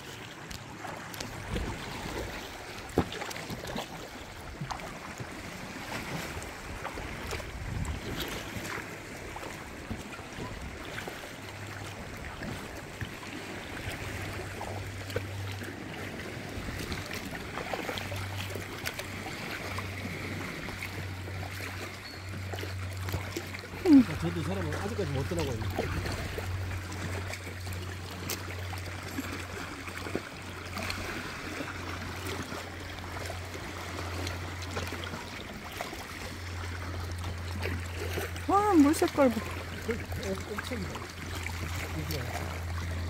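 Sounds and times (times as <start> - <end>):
water drips and splashes: 0.0 - 43.0
water lapping against kayak hull: 0.0 - 43.0
wind on microphone: 6.1 - 8.7.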